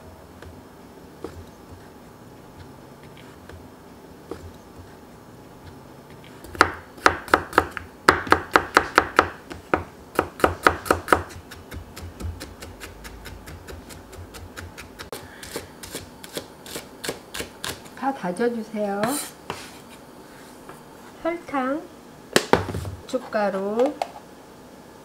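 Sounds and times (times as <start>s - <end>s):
knife chopping on wooden board: 6.4s - 18.0s.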